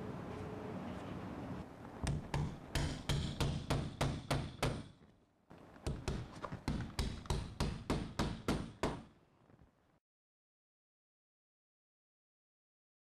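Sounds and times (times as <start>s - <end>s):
claw hammer striking nails: 2.0s - 5.1s, 5.8s - 9.2s.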